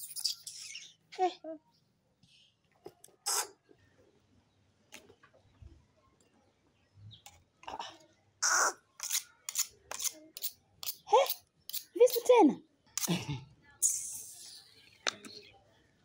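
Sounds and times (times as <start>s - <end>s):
knife blades scraping together: 9.0s - 11.9s.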